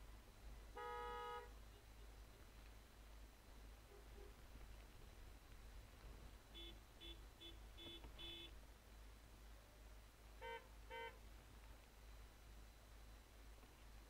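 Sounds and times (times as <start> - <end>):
car horns tooting: 0.7 - 1.6, 6.5 - 8.6, 10.4 - 11.2
high-pitched horn blasts: 0.8 - 1.5, 6.6 - 8.5, 10.4 - 11.2.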